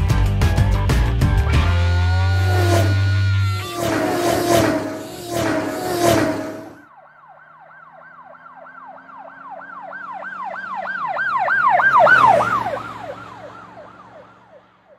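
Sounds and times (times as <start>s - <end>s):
low engine drone: 1.5s - 6.9s
siren yelping: 2.0s - 14.6s.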